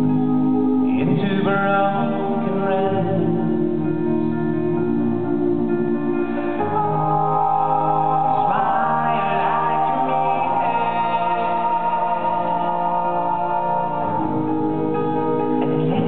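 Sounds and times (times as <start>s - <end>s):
man singing lead vocals: 0.0s - 4.9s, 6.3s - 16.0s
acoustic guitar: 0.0s - 16.0s
male a cappella harmony chords: 0.0s - 16.0s.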